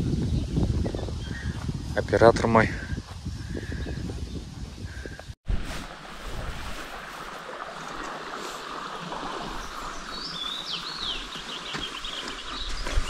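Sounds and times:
wind in trees: 0:00.0 - 0:13.0
river rushing: 0:05.5 - 0:12.2.

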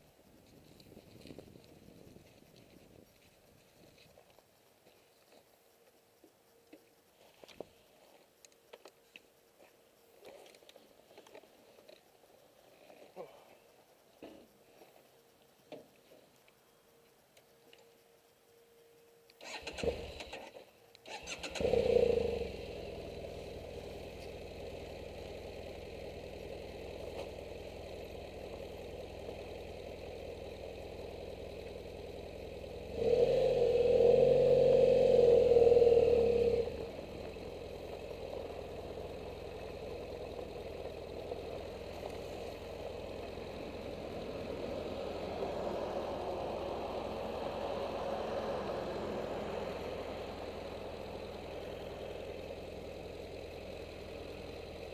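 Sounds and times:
motorcycle starter cranking: 0:19.3 - 0:25.8
motorcycle engine idling: 0:19.4 - 0:54.9
motorcycle engine revving: 0:19.4 - 0:54.9.

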